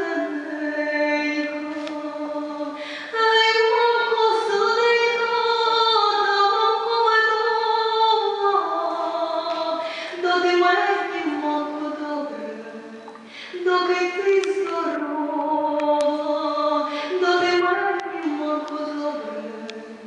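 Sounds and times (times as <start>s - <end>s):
woman singing a cappella: 0.0s - 20.0s.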